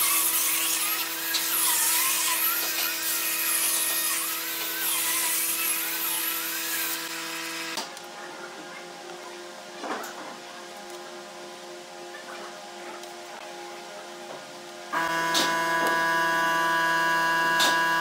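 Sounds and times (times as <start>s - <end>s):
angle grinder sanding wood: 0.0s - 7.8s.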